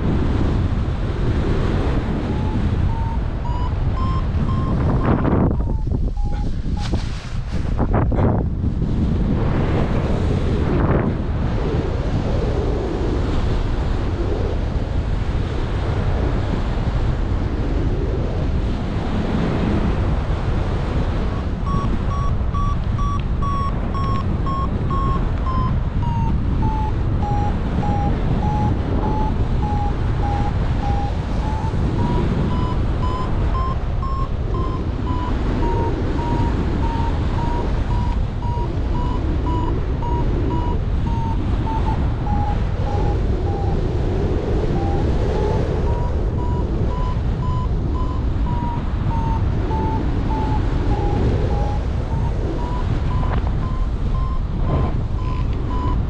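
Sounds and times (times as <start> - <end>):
wind rushing over microphone: 0.0 - 56.0
variometer beeping rapidly: 1.8 - 6.9, 21.3 - 43.8, 44.4 - 56.0.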